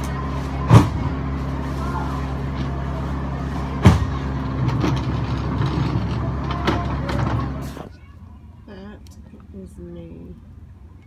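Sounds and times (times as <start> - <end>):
low mechanical hum: 0.0 - 11.0
heavy thump: 3.8 - 5.5.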